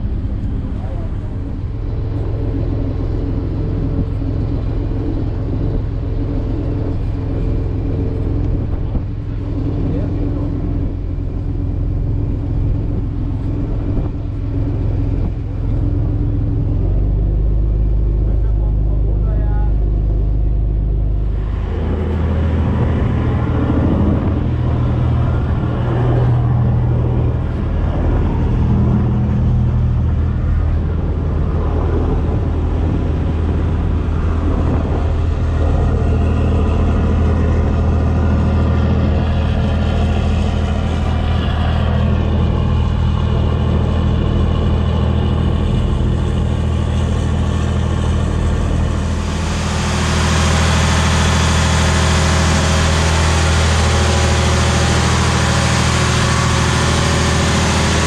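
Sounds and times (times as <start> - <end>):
marine diesel engine droning: 0.0 - 58.0
wind and water rushing: 0.0 - 58.0.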